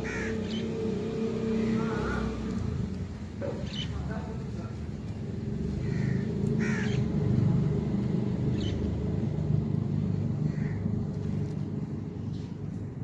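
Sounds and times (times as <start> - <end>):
harsh bird calls: 0.0 - 2.6, 3.4 - 4.4, 5.1 - 7.3, 8.4 - 9.2.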